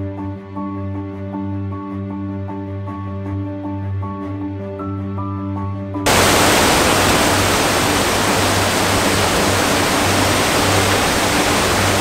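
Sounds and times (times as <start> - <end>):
waterfall rushing and splashing: 6.1 - 12.0.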